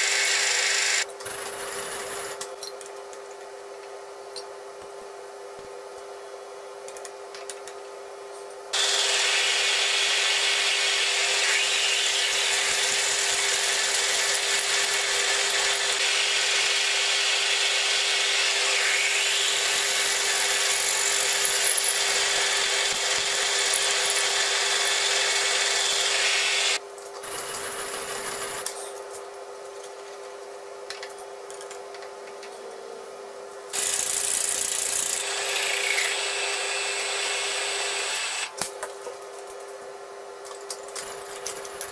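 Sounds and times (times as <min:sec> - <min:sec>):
drill press motor humming: 0:00.0 - 0:01.0, 0:08.8 - 0:28.6, 0:33.8 - 0:38.5
drill cutting metal: 0:00.0 - 0:01.1, 0:08.8 - 0:26.8, 0:33.8 - 0:38.6.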